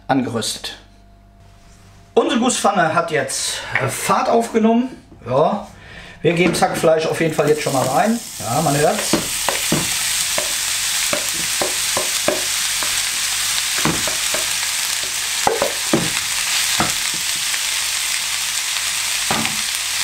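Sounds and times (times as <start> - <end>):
meat sizzling in a skillet: 7.4 - 20.0
spatula knocking and scraping: 8.9 - 14.6, 15.5 - 17.5.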